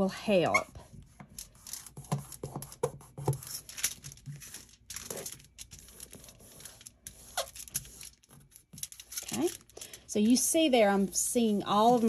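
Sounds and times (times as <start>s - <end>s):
aluminium foil crinkling: 3.6s - 12.0s.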